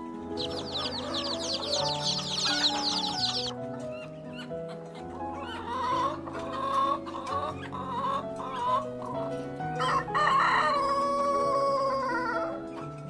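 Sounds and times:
chickens clucking: 0.0s - 13.0s
rooster crowing: 0.4s - 3.5s, 9.8s - 12.7s.

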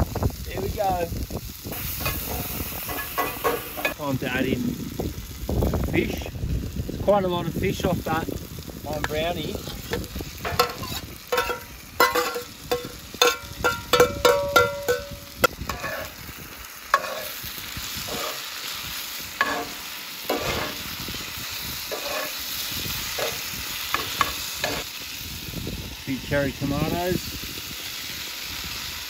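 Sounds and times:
food sizzling in a pan: 0.0s - 29.0s
utensil scraping a pan: 1.7s - 4.0s, 8.9s - 16.3s, 16.9s - 21.0s, 21.8s - 24.8s.

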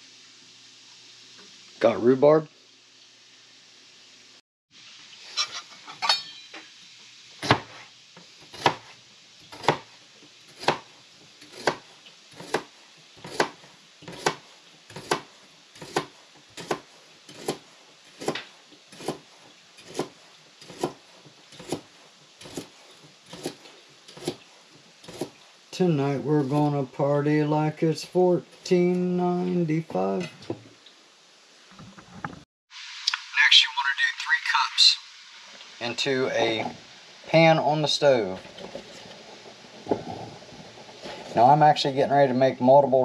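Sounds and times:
knife chopping on cutting board: 7.4s - 7.8s, 8.5s - 8.9s, 9.5s - 9.9s, 10.6s - 10.9s, 11.5s - 11.8s, 12.4s - 17.6s, 18.2s - 21.0s, 21.6s - 22.7s, 23.3s - 24.4s.

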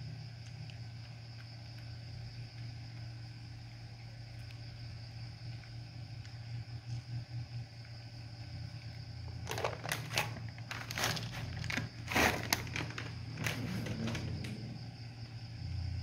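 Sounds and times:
dry kibble on concrete floor: 0.0s - 16.0s
plastic bag crinkling: 9.4s - 14.3s.

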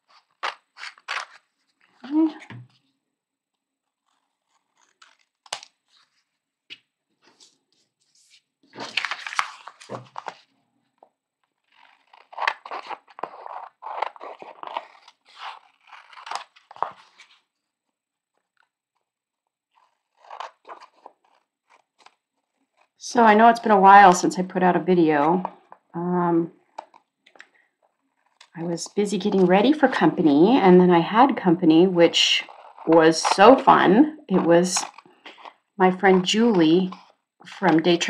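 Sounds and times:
scissors snipping paper: 11.7s - 17.0s, 19.8s - 22.2s, 32.4s - 35.5s.

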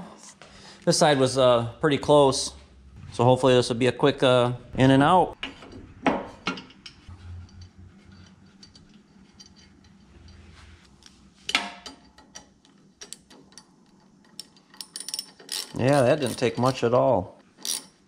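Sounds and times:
metal parts clicking and tapping: 11.5s - 16.8s.

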